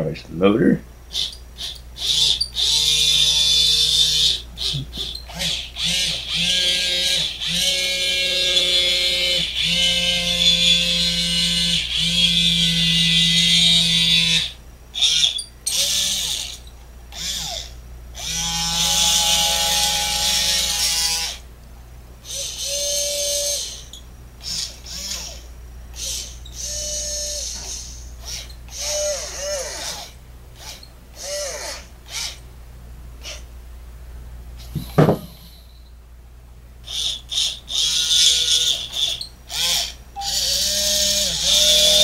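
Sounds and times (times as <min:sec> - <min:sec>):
small gearbox motors whirring: 0:01.1 - 0:21.4, 0:22.2 - 0:32.4, 0:36.9 - 0:42.0.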